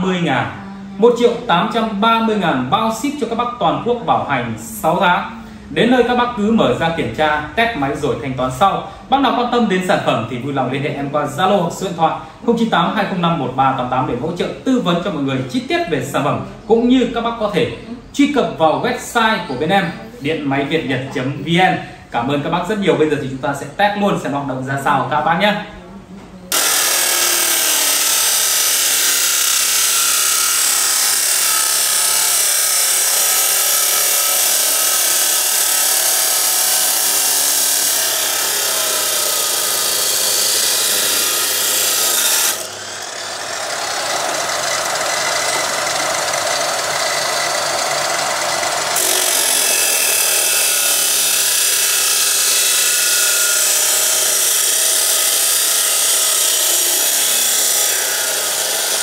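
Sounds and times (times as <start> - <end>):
cut-off saw grinding steel: 26.5 - 59.0.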